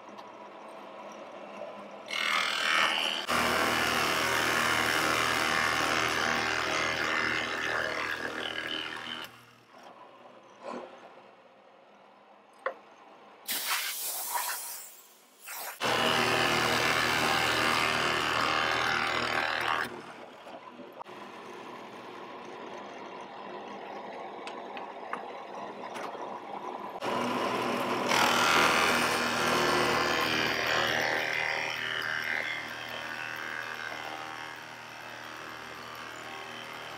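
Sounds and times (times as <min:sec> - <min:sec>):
drill bit boring into wood: 0:27.0 - 0:36.9
drill press motor running: 0:27.0 - 0:36.9.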